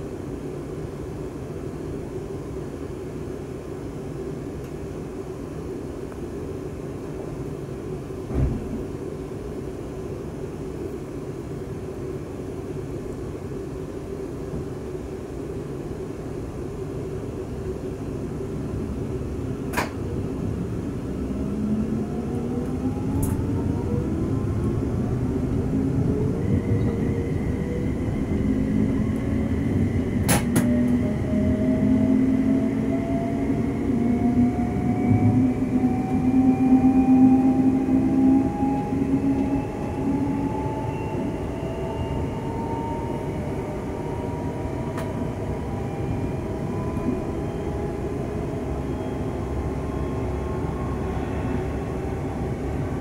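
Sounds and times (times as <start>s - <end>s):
wheels rumbling on rail: 16.3s - 53.0s
train traction motor whine: 18.8s - 53.0s.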